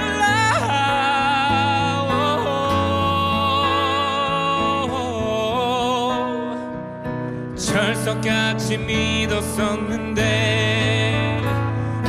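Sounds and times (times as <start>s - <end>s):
acoustic guitar: 0.0s - 12.0s
keyboard: 0.0s - 12.0s
man singing a ballad: 0.0s - 12.0s.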